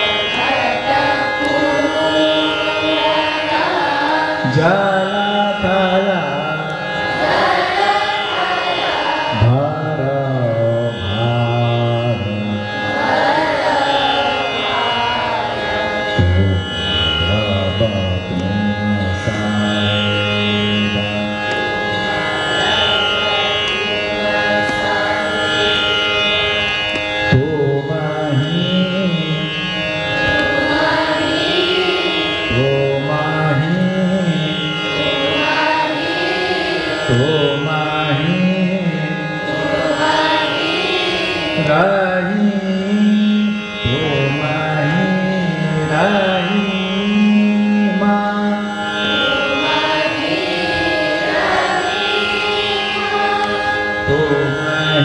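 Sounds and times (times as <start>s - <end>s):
tanpura drone: 0.0s - 55.0s
man singing gliding phrases: 4.3s - 6.8s, 9.2s - 12.9s, 16.0s - 21.5s, 27.3s - 29.9s, 30.6s - 36.0s, 36.9s - 39.6s, 41.4s - 49.8s, 54.0s - 55.0s.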